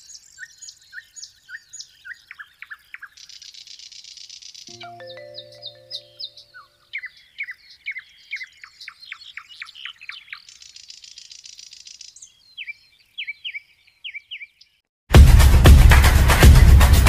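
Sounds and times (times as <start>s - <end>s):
songbird chirping: 0.0s - 14.9s
held musical chord: 4.7s - 6.6s.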